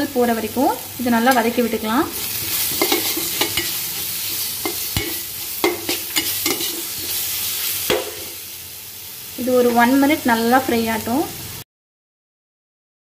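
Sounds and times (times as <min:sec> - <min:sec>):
onions sizzling in oil: 0:00.0 - 0:11.6
spatula scraping a pan: 0:02.1 - 0:08.4.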